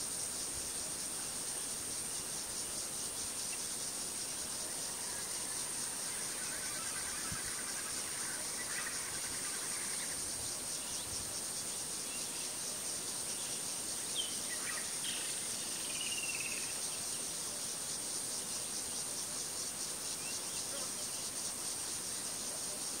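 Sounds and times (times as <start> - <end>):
insect chorus with pulsing trill: 0.0 - 23.0.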